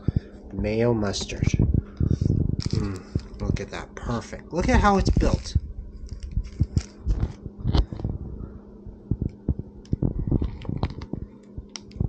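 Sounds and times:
chewing crusty bread: 0:06.0 - 0:08.0.

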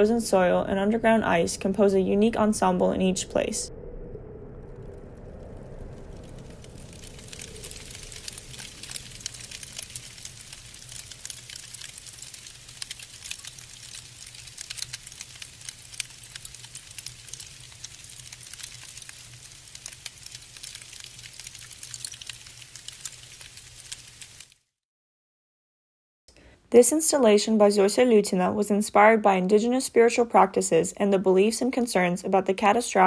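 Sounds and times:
low hum: 0:00.0 - 0:21.5
soft crackling: 0:04.5 - 0:24.6.

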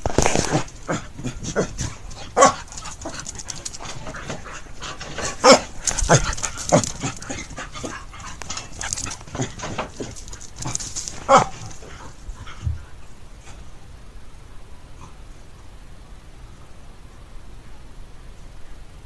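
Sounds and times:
dogs panting: 0:00.5 - 0:13.8.

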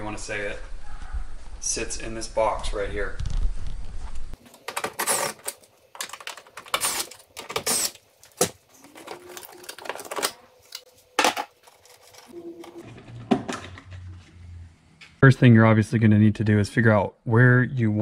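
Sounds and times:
plastic scraping rattles: 0:08.4 - 0:10.4.

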